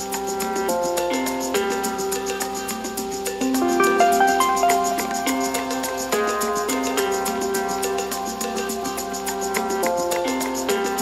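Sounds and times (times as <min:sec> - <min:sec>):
ticking beat: 0:03.4 - 0:11.0
melody of short pitched notes: 0:03.6 - 0:06.6.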